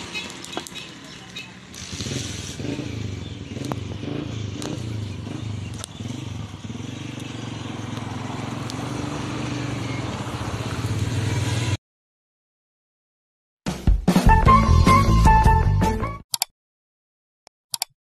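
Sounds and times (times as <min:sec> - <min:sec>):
small engine running: 0:00.0 - 0:11.7
sharp clicks: 0:16.3 - 0:16.5, 0:17.7 - 0:18.0.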